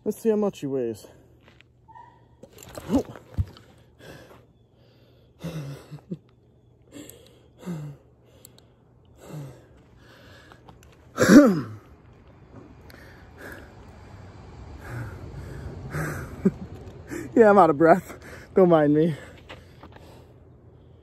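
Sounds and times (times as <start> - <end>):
man breathing heavily: 3.4 - 6.1, 6.8 - 12.0, 12.8 - 17.4, 18.0 - 21.0
man groaning: 11.2 - 11.8.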